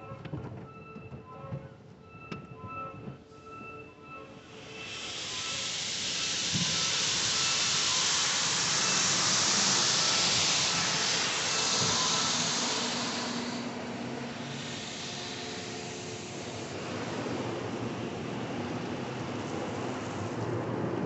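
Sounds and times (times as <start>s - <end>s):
water jets spraying onto car: 4.4s - 21.0s.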